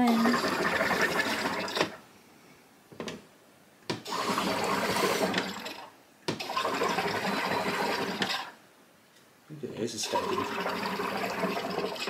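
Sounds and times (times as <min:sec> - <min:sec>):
soda maker gas hissing and bubbling: 0:00.0 - 0:02.0, 0:04.0 - 0:08.6, 0:09.8 - 0:12.0.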